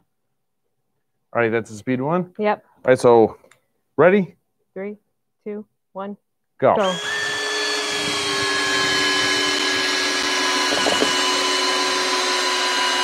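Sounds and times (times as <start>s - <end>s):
cordless drills whining: 6.8s - 13.0s.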